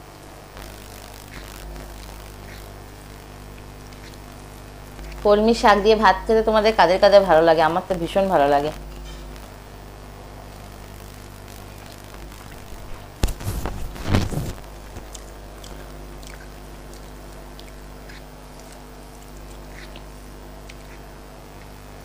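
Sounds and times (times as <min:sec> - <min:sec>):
steady low hum: 0:00.0 - 0:22.0
person chewing and smacking: 0:00.6 - 0:05.2, 0:11.7 - 0:22.0.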